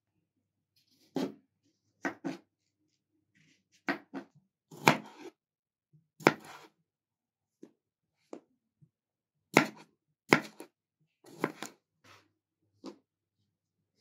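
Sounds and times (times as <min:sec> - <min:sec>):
knife cutting vegetables: 0:03.8 - 0:05.4, 0:06.2 - 0:06.7, 0:09.5 - 0:10.7, 0:11.3 - 0:12.2.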